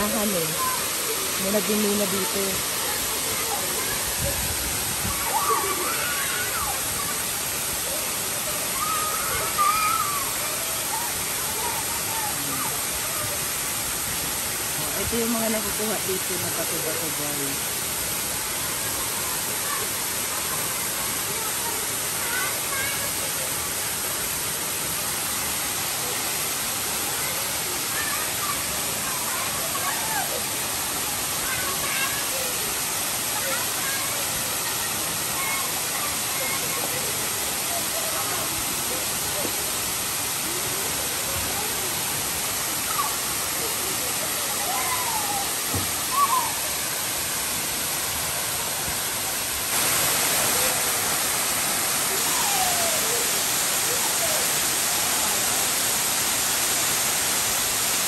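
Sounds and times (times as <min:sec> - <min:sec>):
waterfall rushing: 0:00.0 - 0:58.0
faint shouts: 0:44.5 - 0:46.7.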